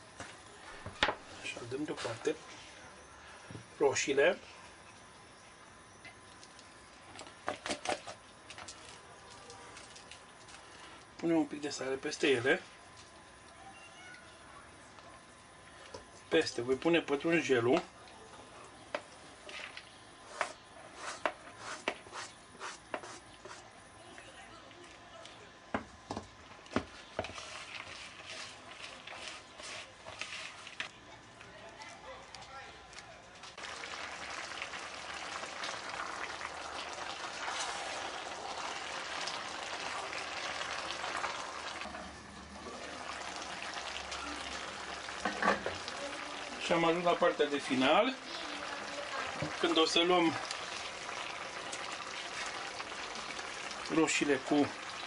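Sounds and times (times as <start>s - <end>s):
stew bubbling in a pot: 0.0s - 31.5s, 33.4s - 55.0s
soft scrapes on cutting board: 20.2s - 23.7s, 27.2s - 30.8s
wooden spoon stirring stew: 26.1s - 31.5s.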